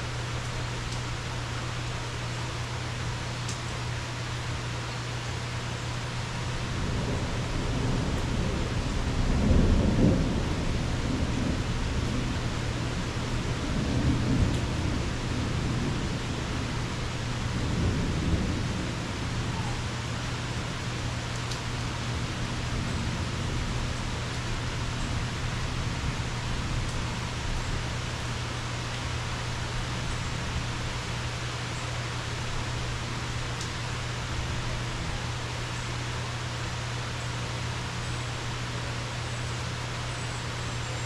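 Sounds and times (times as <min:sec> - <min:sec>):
steady rain: 0:00.0 - 0:41.0
rolling thunder: 0:06.6 - 0:19.8.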